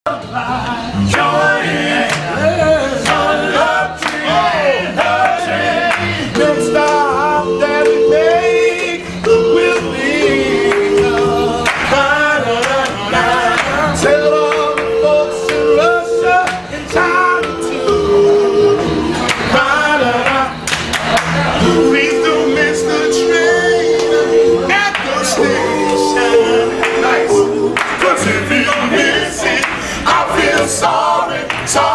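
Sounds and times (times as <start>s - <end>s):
upright double bass: 0.1s - 31.9s
male vocal group singing harmony: 0.2s - 31.9s
handclaps: 2.1s - 2.3s, 3.0s - 3.3s, 4.0s - 4.3s, 10.7s - 12.0s, 19.2s - 19.5s, 20.2s - 21.4s, 27.8s - 28.9s, 31.5s - 31.8s.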